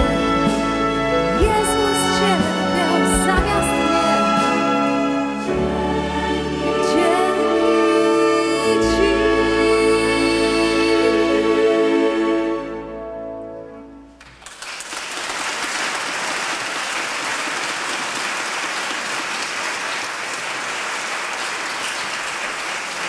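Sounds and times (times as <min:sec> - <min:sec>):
audience applause: 0:14.2 - 0:23.0.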